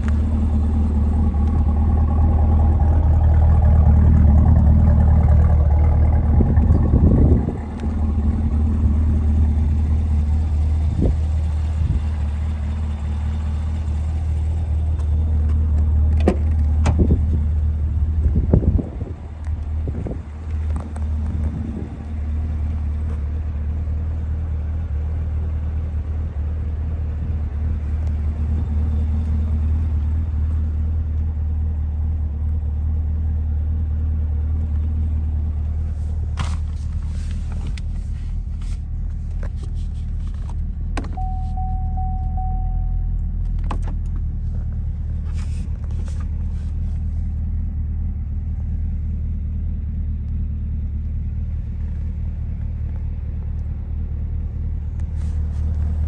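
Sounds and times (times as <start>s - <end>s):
car engine idling: 0.0s - 56.0s
short steady tone: 41.1s - 43.2s.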